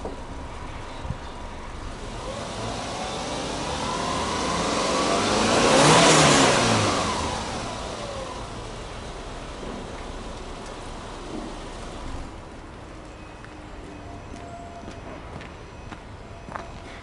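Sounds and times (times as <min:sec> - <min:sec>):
car engine idling: 0:00.0 - 0:13.0
vehicle passing by: 0:02.0 - 0:08.5.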